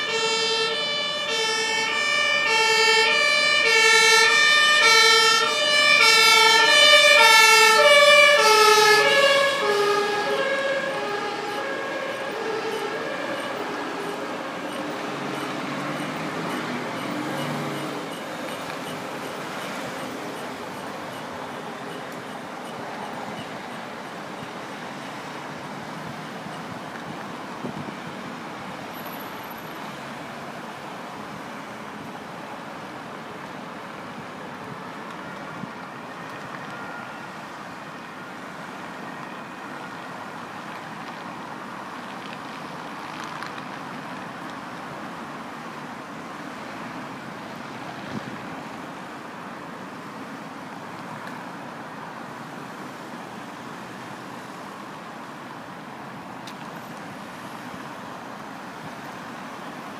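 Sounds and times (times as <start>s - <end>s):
two-tone siren: 0.0s - 23.5s, 35.1s - 40.5s
cars passing on street: 0.0s - 59.9s.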